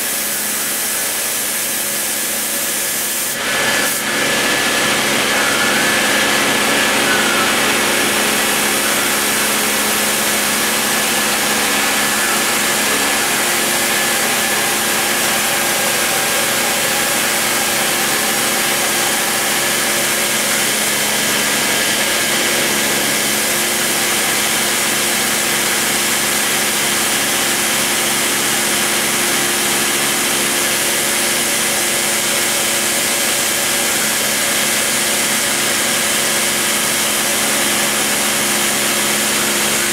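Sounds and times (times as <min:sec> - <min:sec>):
hiss of cutting: 0:00.0 - 0:04.2, 0:06.7 - 0:26.2
rotary tool whining: 0:03.4 - 0:26.0.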